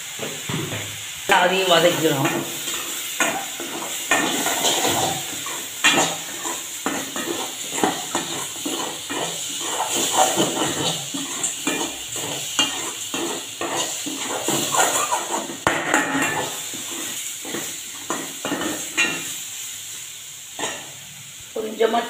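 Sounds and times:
food sizzling in oil: 0.0 - 22.0
metal spoon scraping pot: 4.1 - 19.2.

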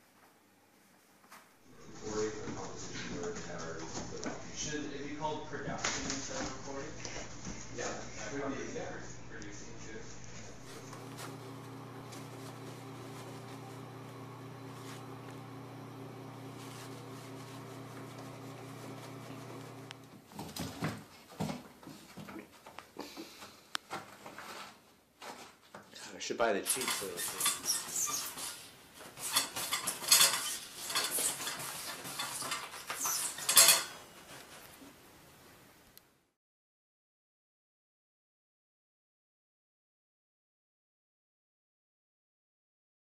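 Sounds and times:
toilet paper rustling: 5.3 - 22.7, 26.4 - 34.9
cat scratching toilet paper: 16.4 - 20.3.

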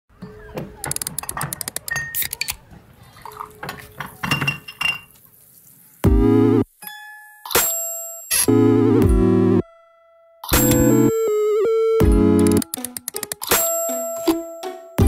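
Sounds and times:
glassy clinks and clatters: 4.2 - 5.2.

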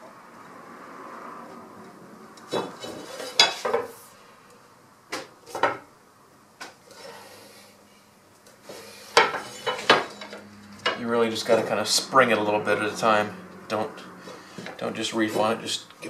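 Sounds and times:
metal tubing clanking on wood: 9.1 - 12.0.

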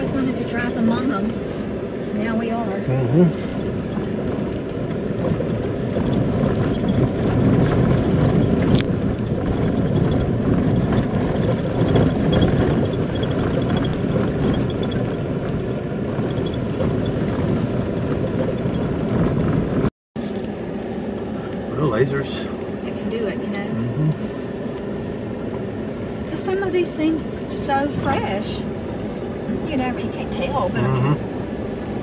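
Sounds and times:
vehicle driving on dirt road: 0.0 - 32.0
small rattles: 3.6 - 19.6.

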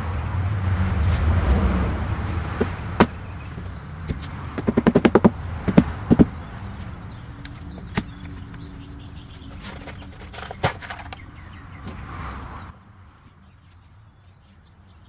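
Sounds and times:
hand tool knocking on wood: 2.6 - 3.2, 4.1 - 6.4.

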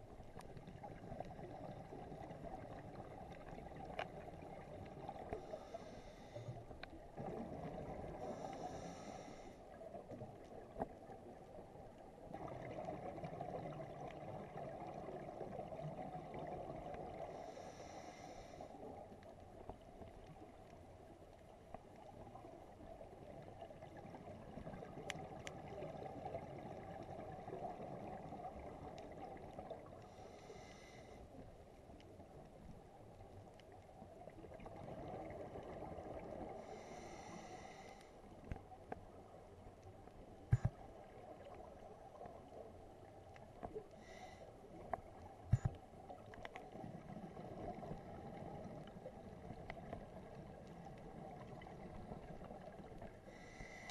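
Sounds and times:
underwater rush of water and bubbles: 0.0 - 53.9
regulator breathing hisses: 5.4 - 6.6, 8.2 - 9.6, 17.4 - 18.7, 30.1 - 31.2, 36.6 - 38.2, 53.3 - 53.9.

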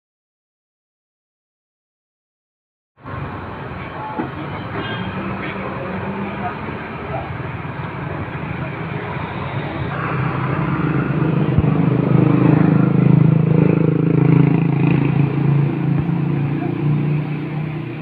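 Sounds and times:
vehicle engine running: 5.8 - 18.0.

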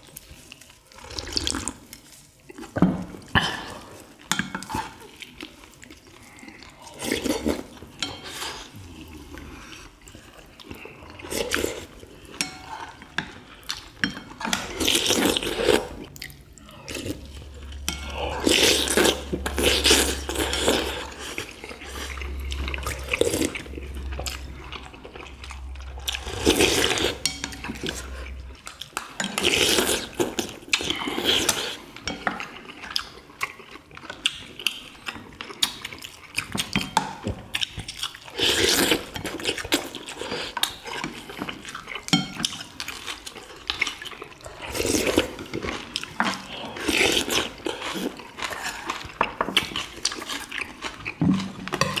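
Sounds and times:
slurping and chewing: 0.0 - 52.0
low steady hum: 6.2 - 31.2.

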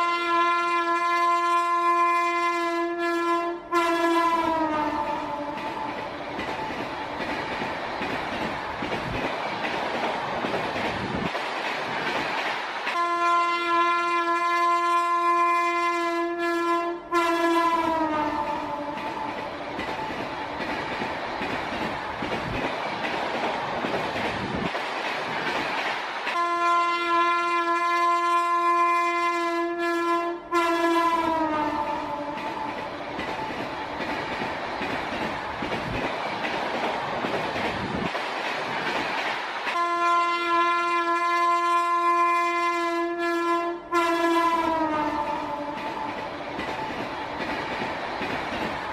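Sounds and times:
train horn blast: 0.0 - 5.7, 12.9 - 19.1, 26.3 - 32.5, 39.7 - 45.9
moving train rumble and clatter: 0.0 - 48.9.

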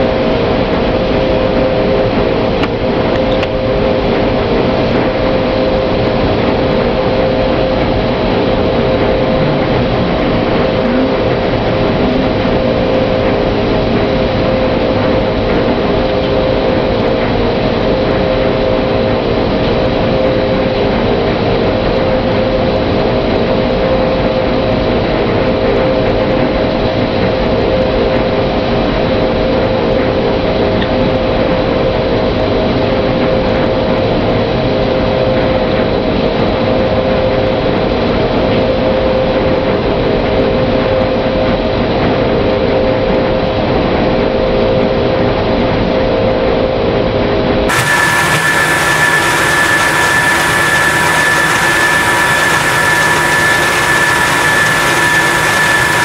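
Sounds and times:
rice milling machine humming: 0.0 - 17.1, 47.7 - 56.0.

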